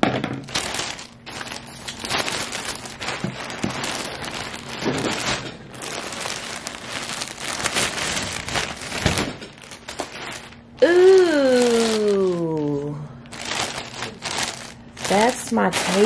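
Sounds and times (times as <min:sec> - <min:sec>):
plastic bag crinkling: 0:00.0 - 0:16.0.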